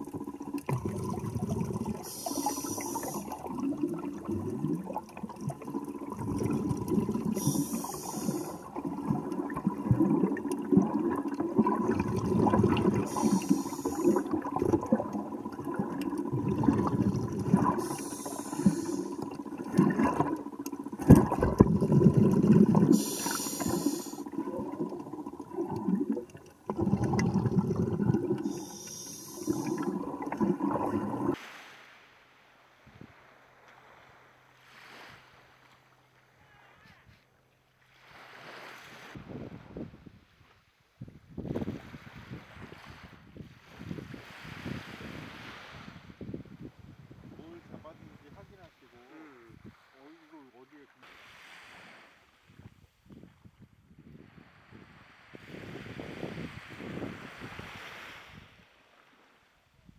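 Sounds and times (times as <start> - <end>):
water churning underwater: 0.0 - 31.4
hissing splash: 0.0 - 32.0.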